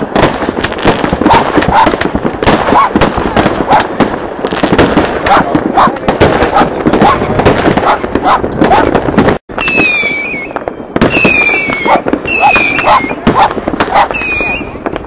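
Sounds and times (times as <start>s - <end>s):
fireworks bangs and pops: 0.0s - 15.0s
shrill firework whistles: 9.6s - 13.2s, 14.0s - 14.8s.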